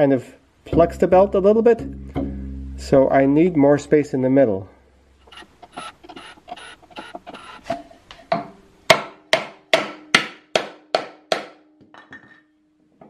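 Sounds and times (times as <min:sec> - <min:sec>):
rubber mallet hammering wood: 0:08.4 - 0:11.6.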